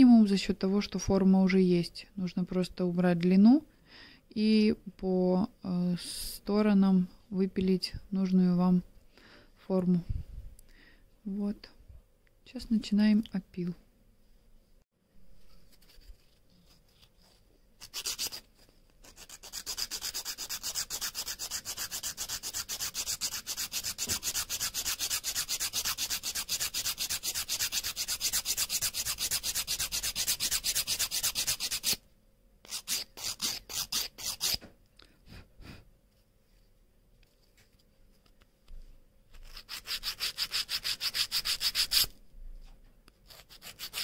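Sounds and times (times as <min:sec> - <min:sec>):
nail file filing: 0:17.8 - 0:32.0, 0:32.7 - 0:34.6, 0:39.3 - 0:42.2, 0:43.2 - 0:44.0.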